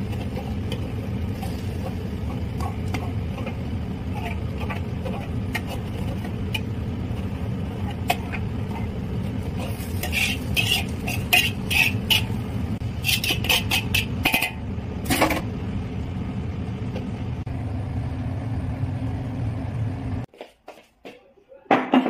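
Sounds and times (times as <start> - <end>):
steady low rumble: 0.0 - 13.1, 14.0 - 20.3
metal spatula scraping a wok: 0.0 - 15.4.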